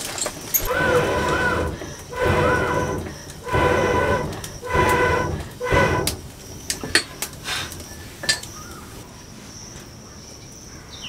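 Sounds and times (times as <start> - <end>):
poker scraping with squeal: 0.5 - 8.1.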